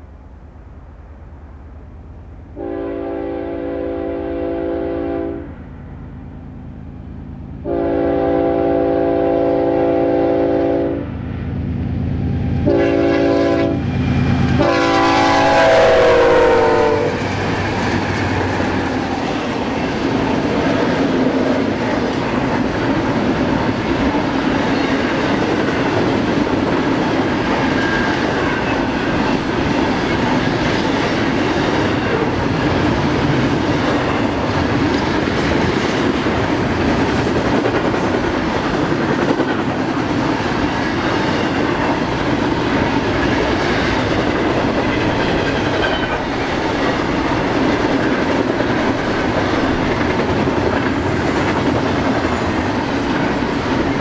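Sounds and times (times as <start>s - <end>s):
train wheels on rail: 0.0s - 54.0s
train air horn blasts: 2.6s - 5.6s, 7.6s - 11.1s, 12.2s - 17.2s.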